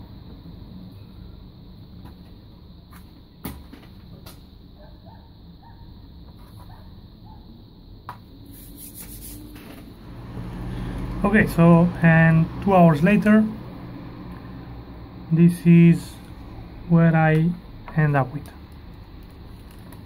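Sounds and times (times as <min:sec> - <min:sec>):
low steady hum: 0:08.7 - 0:20.0.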